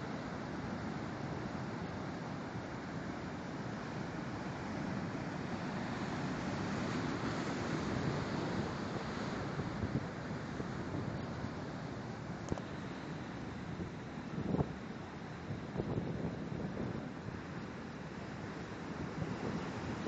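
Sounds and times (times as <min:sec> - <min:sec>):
waves breaking over rocks: 0:00.9 - 0:20.0
wind buffeting microphone: 0:15.7 - 0:17.2.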